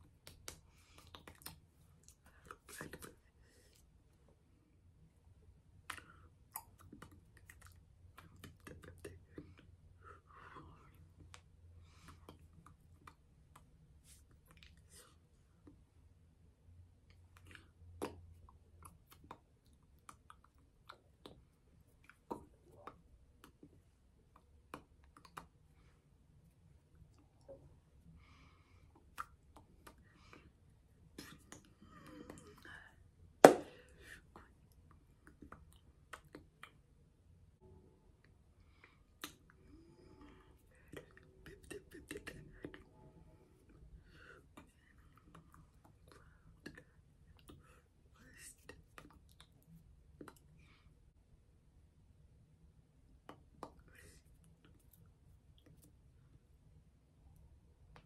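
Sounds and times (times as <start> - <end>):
faint clicks and taps of hands: 0.0 - 3.8, 17.1 - 25.6
soft mouth noises: 0.0 - 4.2, 5.7 - 16.0, 16.9 - 51.0, 53.0 - 58.0.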